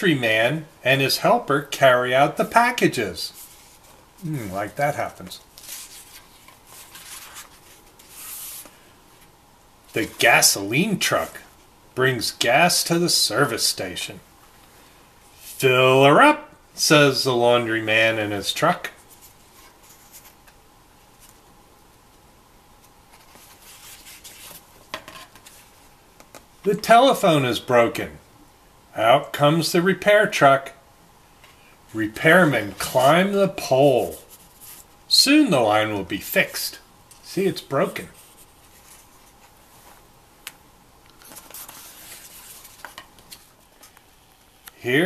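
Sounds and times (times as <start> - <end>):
paper page turning: 5.5 - 8.7, 23.1 - 25.8, 41.1 - 44.0.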